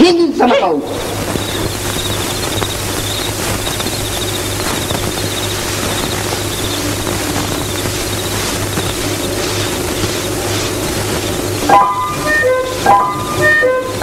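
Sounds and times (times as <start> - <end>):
film soundtrack hiss: 0.0 - 14.0
low hum: 0.6 - 14.0.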